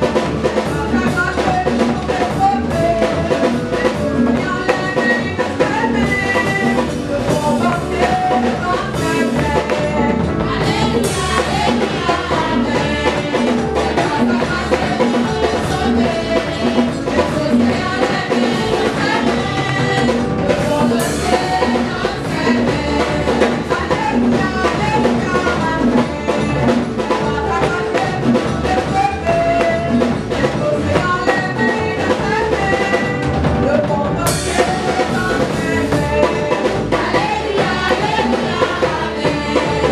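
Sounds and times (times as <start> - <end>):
drum kit beat: 0.0 - 39.9
women singing gospel song: 0.0 - 39.9.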